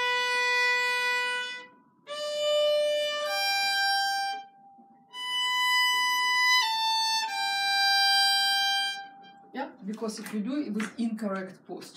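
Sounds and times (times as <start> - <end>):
solo violin sustained notes: 0.0 - 9.4.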